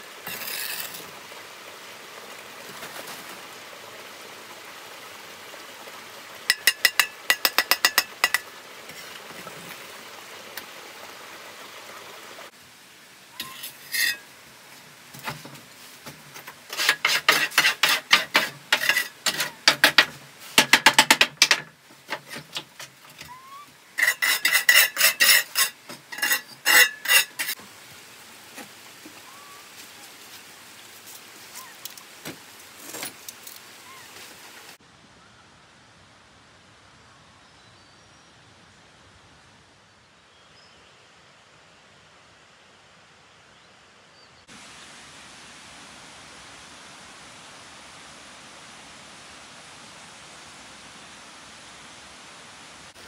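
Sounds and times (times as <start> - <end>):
metal tool clinking: 6.5 - 8.5, 24.0 - 27.6.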